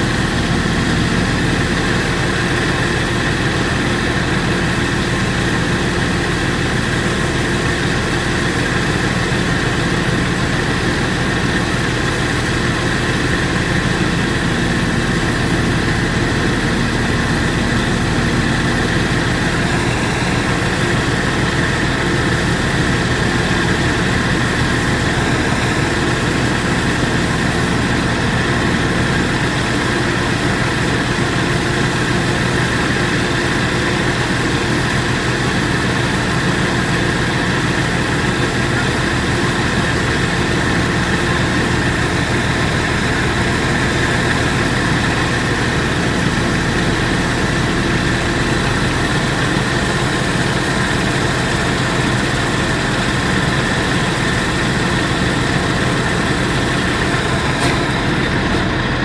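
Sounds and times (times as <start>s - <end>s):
harvester engine droning: 0.0s - 59.0s.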